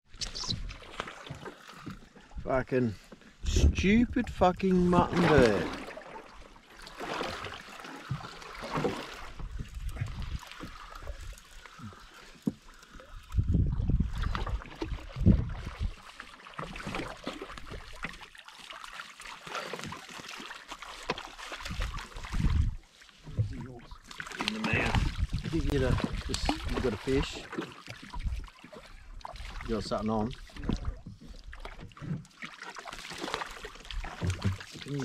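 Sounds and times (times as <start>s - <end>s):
water slapping against boat hull: 0.1s - 2.4s, 3.4s - 35.0s
low thumps on hull: 3.4s - 5.9s, 8.0s - 10.8s, 13.4s - 16.0s, 21.6s - 23.7s, 24.8s - 27.1s, 29.2s - 32.3s, 33.8s - 34.8s.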